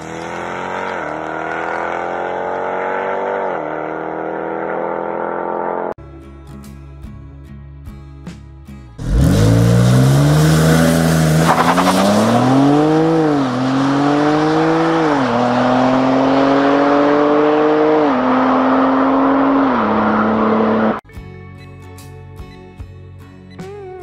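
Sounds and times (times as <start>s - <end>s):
car engine revving through gears: 0.0s - 6.0s, 9.0s - 21.0s.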